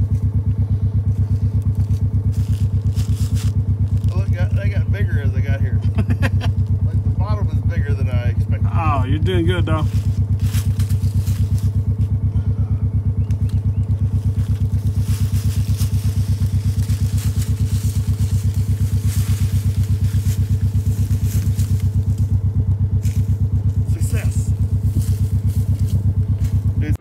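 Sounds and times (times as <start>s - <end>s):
vehicle engine idling: 0.0s - 27.0s
branch dragged across dry grass: 1.1s - 4.2s, 9.8s - 12.1s, 14.0s - 22.4s, 23.0s - 26.8s.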